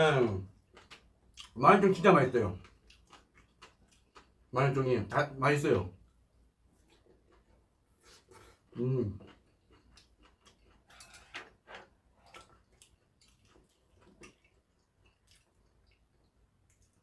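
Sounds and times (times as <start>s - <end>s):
chewing clicks: 0.7s - 1.6s, 2.6s - 4.4s, 9.2s - 11.5s, 12.2s - 17.0s.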